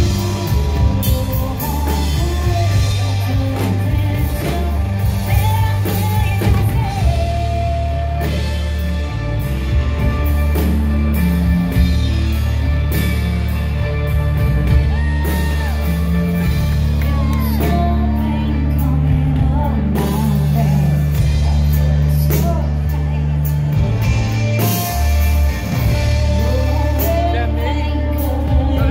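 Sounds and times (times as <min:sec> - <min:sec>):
woman singing: 0:00.0 - 0:09.1, 0:14.8 - 0:24.8, 0:25.7 - 0:28.9
drum kit: 0:00.0 - 0:28.9
electric guitar: 0:00.0 - 0:28.9.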